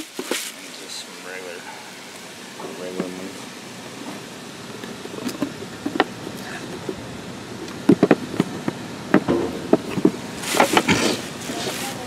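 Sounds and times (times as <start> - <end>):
wooden boxes knocking together: 7.8 - 11.2.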